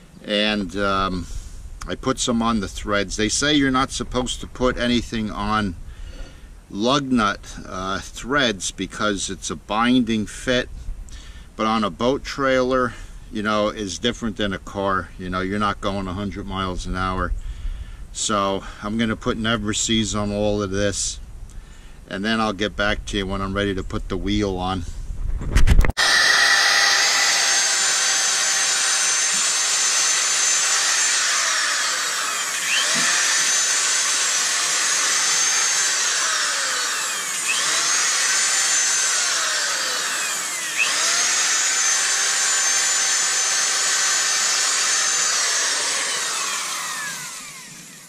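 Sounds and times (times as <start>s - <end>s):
electric drill whining: 26.0s - 48.0s.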